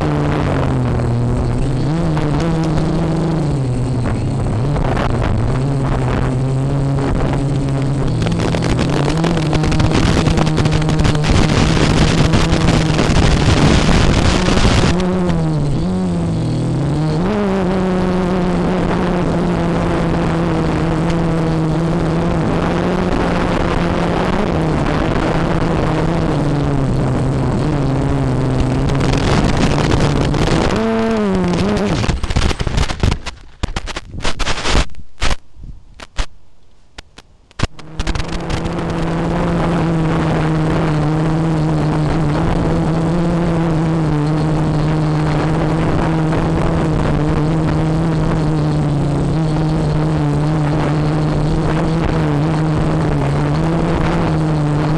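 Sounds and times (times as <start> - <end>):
drone propellers whining: 0.0 - 34.9, 37.5 - 54.9
drone hitting tree branches: 26.8 - 36.5.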